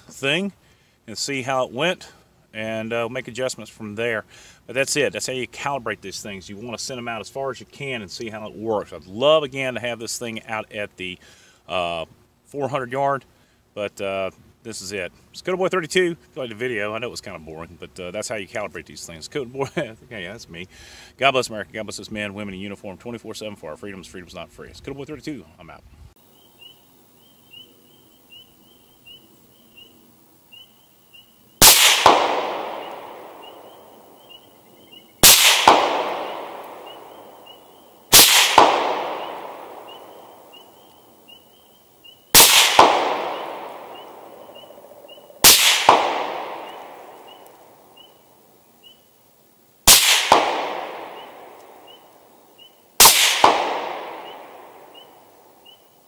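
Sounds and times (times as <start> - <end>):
rifle shots with echo: 31.6 - 34.4, 35.2 - 40.8, 42.3 - 48.0, 49.9 - 52.2, 53.0 - 55.4.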